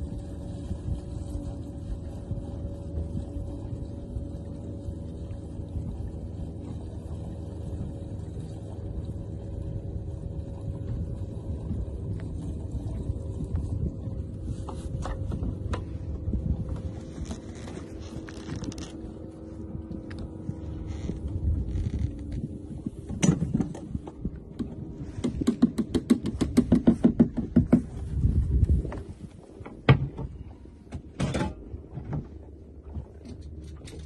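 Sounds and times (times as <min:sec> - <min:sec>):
faint hum: 0:00.0 - 0:25.3
wind and water rumble: 0:00.0 - 0:34.0.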